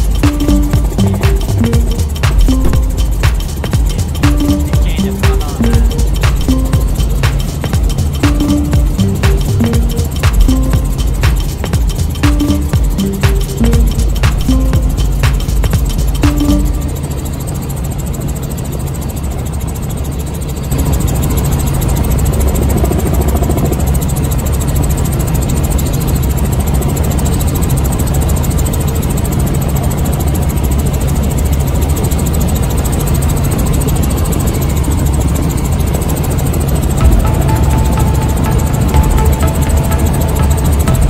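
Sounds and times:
helicopter engine and rotor drone: 15.8s - 41.0s.

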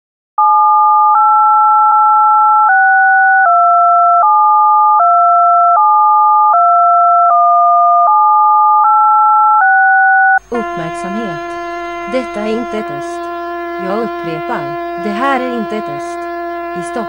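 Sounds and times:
electronic attention tones: 9.6s - 17.0s.

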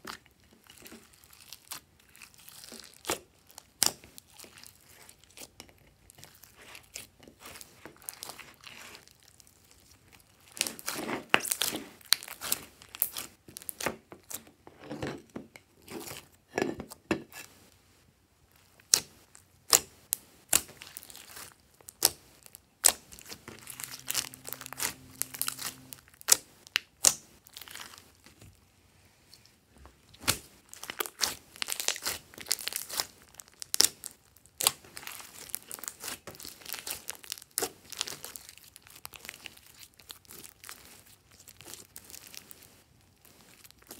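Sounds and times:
hands squeezing sticky slime: 0.0s - 14.4s, 18.8s - 28.1s, 30.2s - 43.9s.

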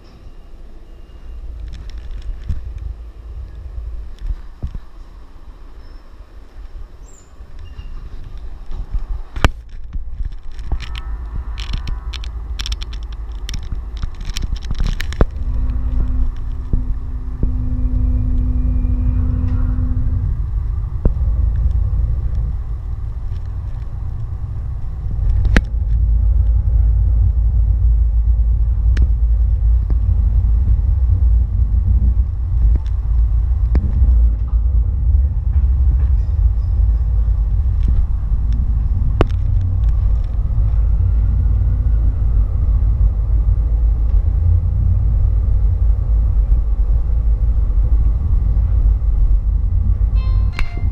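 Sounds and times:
steady hum: 0.0s - 50.9s
trolley car rumbling on track: 0.0s - 50.9s
sharp clicks and knocks: 7.5s - 17.7s, 21.0s - 27.4s, 32.5s - 40.9s.

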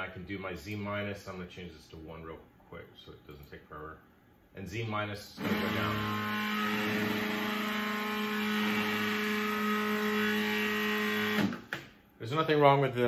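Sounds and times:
stepper motor humming: 5.4s - 11.6s.

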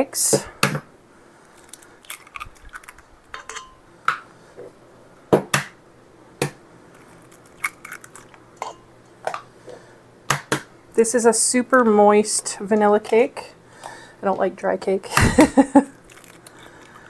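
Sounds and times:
eggshells cracking against steel bowl: 1.5s - 4.2s, 6.4s - 9.5s, 16.0s - 17.0s.

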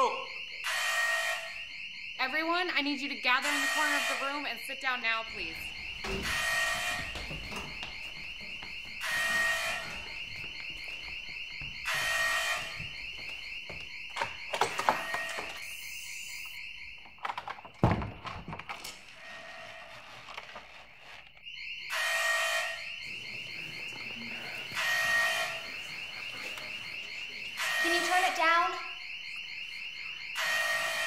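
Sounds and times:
horn-like alarm blast: 0.0s - 13.6s, 21.6s - 31.0s
pulsing alarm tone: 0.0s - 17.4s, 19.0s - 31.0s.

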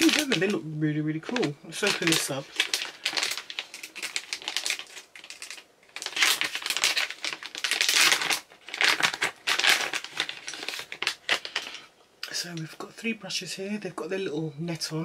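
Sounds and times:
plastic pouch crinkling: 0.0s - 11.9s.

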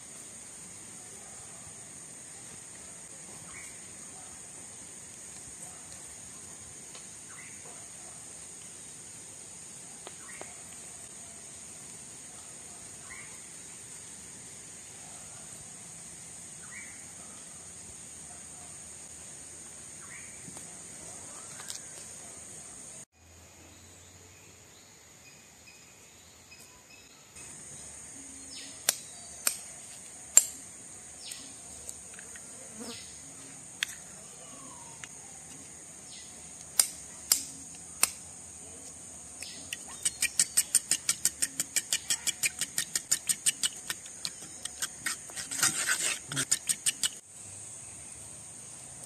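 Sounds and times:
high buzz of insects: 0.0s - 49.0s
spoon beating eggs in bowl: 40.0s - 47.2s.

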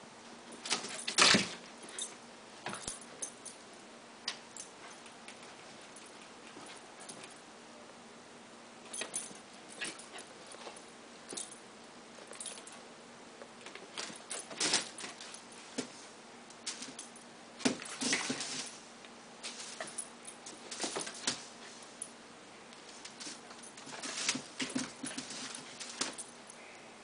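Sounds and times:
puppy scuffling and pouncing: 13.4s - 22.0s, 22.8s - 26.4s.

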